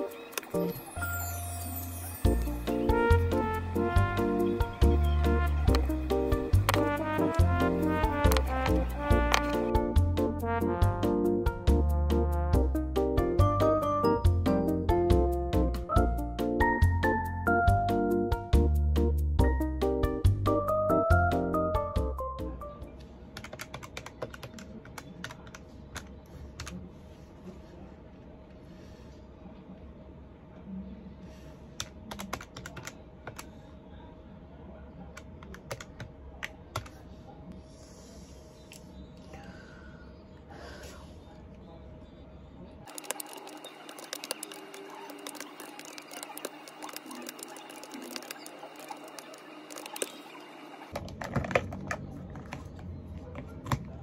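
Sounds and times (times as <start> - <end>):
background music: 0.0 - 22.9
tapping on calculator keys: 23.4 - 26.8, 31.8 - 33.5, 35.2 - 37.0.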